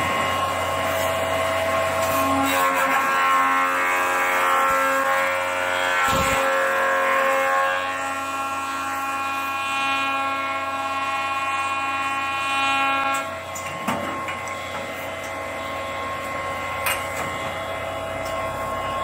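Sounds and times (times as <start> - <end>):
machine running roughly: 0.0 - 19.0
machine whine: 0.0 - 19.0.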